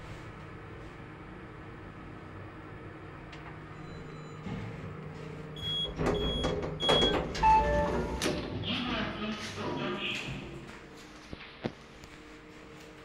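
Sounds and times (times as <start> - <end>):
lift car humming: 0.5 - 9.8
sliding doors knocking and rattling: 5.7 - 8.6.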